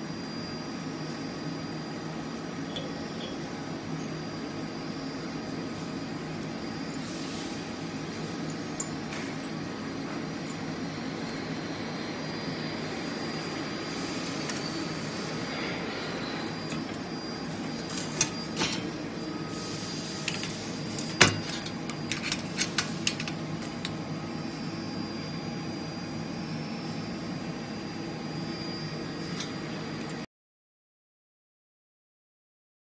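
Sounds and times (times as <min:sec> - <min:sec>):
workshop hum: 0:00.0 - 0:30.3.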